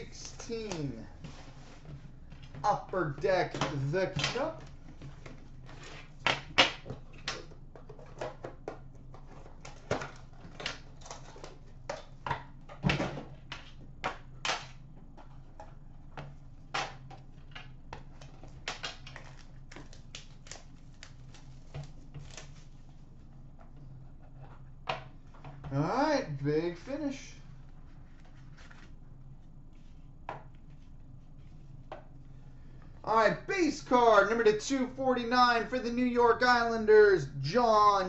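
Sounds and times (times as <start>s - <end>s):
faint steady hum: 0.0s - 38.0s
shrink wrap crinkling and tearing: 18.6s - 22.9s.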